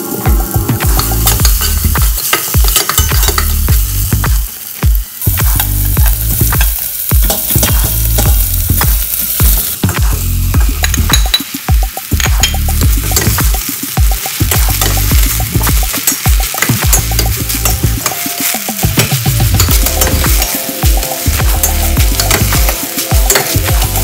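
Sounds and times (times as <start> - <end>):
food sizzling in oil: 0.0 - 24.0
spatula clattering against pot: 1.0 - 3.6.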